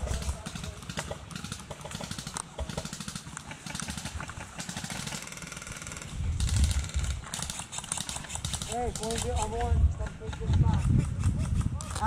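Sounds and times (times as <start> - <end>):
airsoft gun firing full-auto: 0.0 - 9.5.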